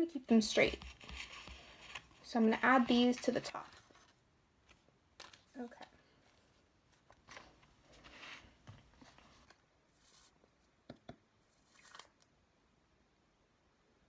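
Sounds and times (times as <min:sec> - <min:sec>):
paper rustling and crinkling: 0:00.6 - 0:10.3.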